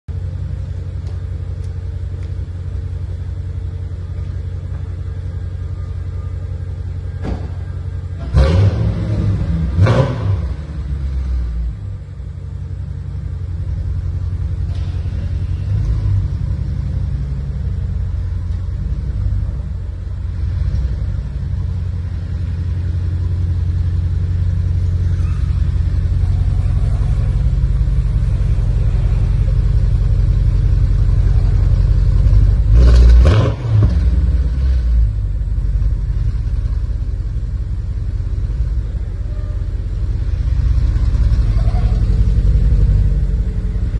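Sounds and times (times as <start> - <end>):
car exhaust idling: 0.1 - 43.9
engine revving blips: 7.1 - 10.8, 31.0 - 35.0.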